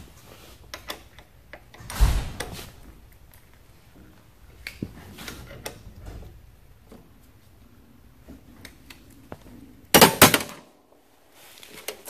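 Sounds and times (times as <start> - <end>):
loud thump: 1.9 - 2.9.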